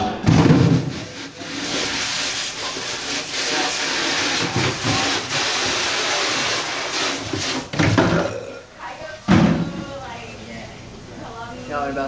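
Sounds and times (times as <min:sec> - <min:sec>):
water spraying hiss: 0:00.7 - 0:07.8.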